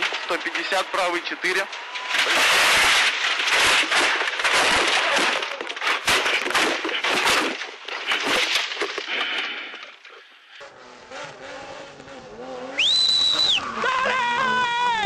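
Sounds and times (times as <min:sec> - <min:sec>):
car crashing through vegetation: 0:00.0 - 0:09.3
windscreen smashing: 0:00.0 - 0:09.4.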